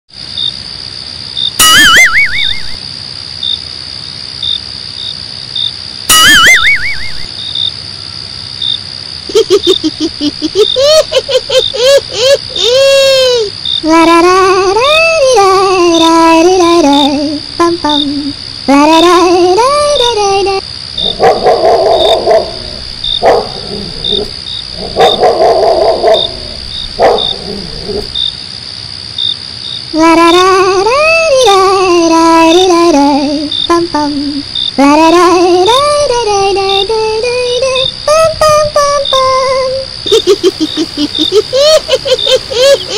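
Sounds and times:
crickets chirping: 0.1s - 42.9s
high insect drone: 0.2s - 42.9s
wobbling whistle sound effect: 1.6s - 2.8s, 6.1s - 7.3s
wavering bark-like phrase: 12.6s - 28.2s.

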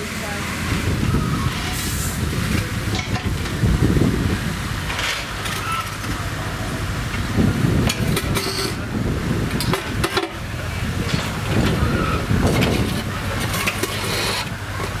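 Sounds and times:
diesel engine running: 0.0s - 15.0s
gravel crunching and scraping: 4.8s - 15.0s.

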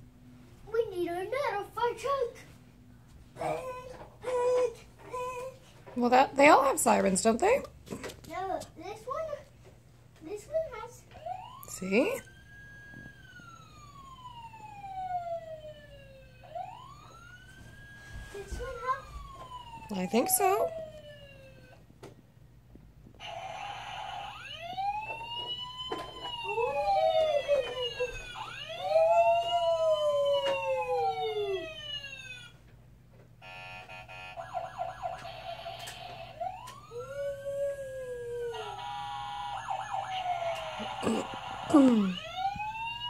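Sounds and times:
toy fire truck sirens wailing: 12.3s - 17.5s, 23.2s - 32.6s, 33.4s - 43.0s.

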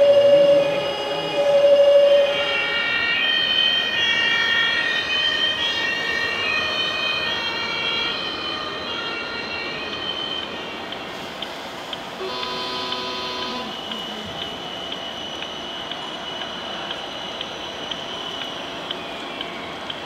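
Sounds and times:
steady lower tone: 0.0s - 2.6s
electronic sirens: 0.0s - 20.0s.

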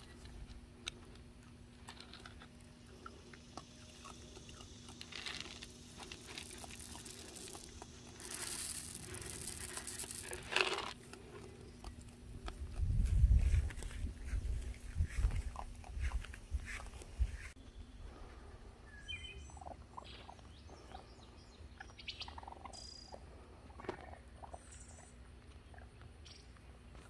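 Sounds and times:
kibble pouring onto dirt: 4.7s - 12.0s.

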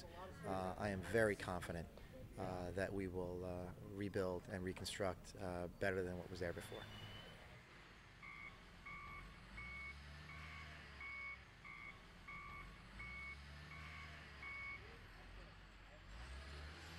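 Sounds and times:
engine rumble: 0.0s - 16.9s
backup alarm beeping: 8.2s - 14.8s.

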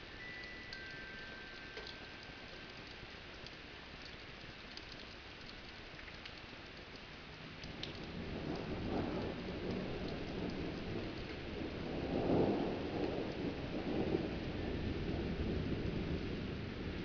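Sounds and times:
steady rain: 0.0s - 17.0s
thunder rumbling: 8.0s - 17.0s.

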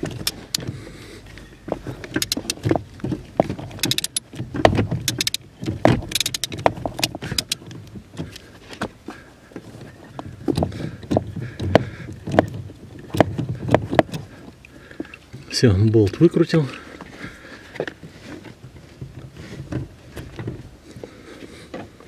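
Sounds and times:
ratchet clicking on metal: 0.0s - 0.6s, 2.1s - 2.6s, 3.8s - 4.3s, 5.0s - 5.4s, 6.0s - 7.6s
handling bumps: 0.0s - 16.3s.

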